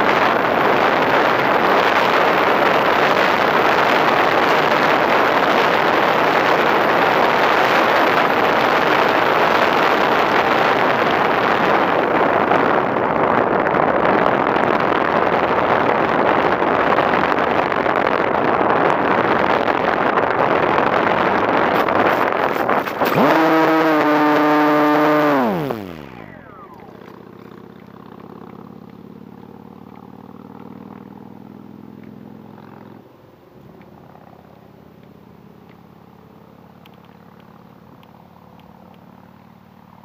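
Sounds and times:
air rushing over microphone: 0.0s - 27.3s.

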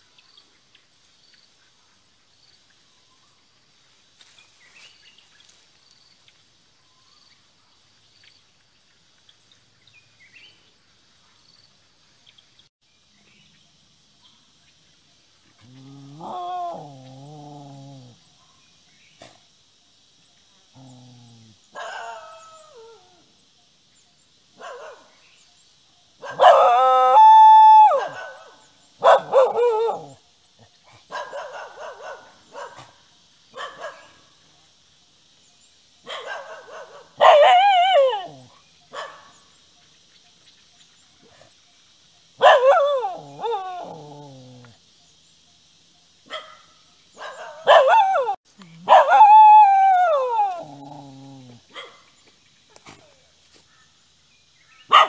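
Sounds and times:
dogs howling: 15.8s - 18.2s, 20.8s - 23.3s, 26.2s - 30.2s, 36.5s - 38.5s, 42.4s - 44.7s, 47.2s - 51.9s.

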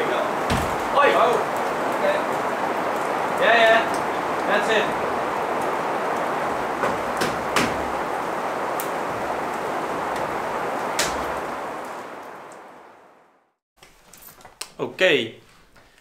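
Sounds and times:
steady rain: 0.0s - 13.6s
wooden knocks: 6.8s - 7.9s.

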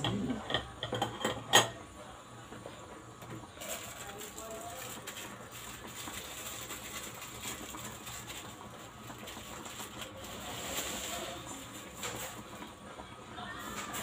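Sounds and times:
plastic sachet crinkling: 3.6s - 12.7s.

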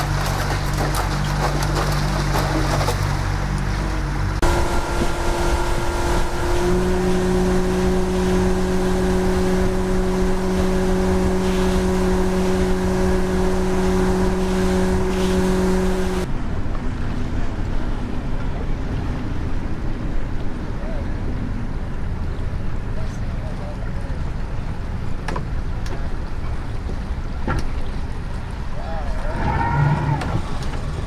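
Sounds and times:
outboard motor droning: 0.0s - 19.1s
rushing wind and water spray: 0.0s - 31.0s.

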